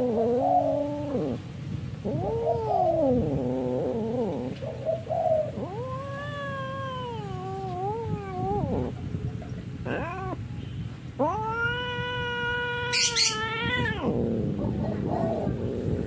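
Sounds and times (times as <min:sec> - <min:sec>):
cat yowling: 0:02.0 - 0:04.6, 0:05.4 - 0:09.0, 0:09.8 - 0:10.4, 0:11.2 - 0:14.8.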